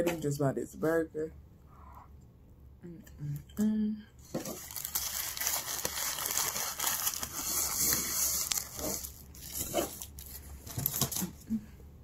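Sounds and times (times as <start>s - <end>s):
foil wrapper crinkling: 4.4s - 11.3s.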